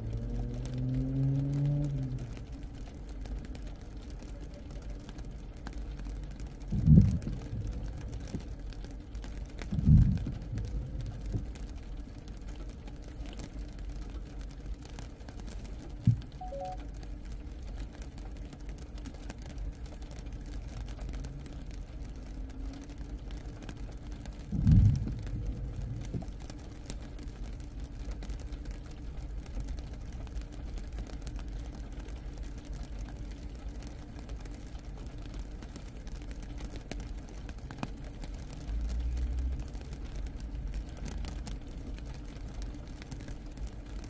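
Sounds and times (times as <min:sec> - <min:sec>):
low background rumble: 0:00.0 - 0:44.0
distant thunder rumble: 0:06.7 - 0:08.0, 0:24.5 - 0:26.3.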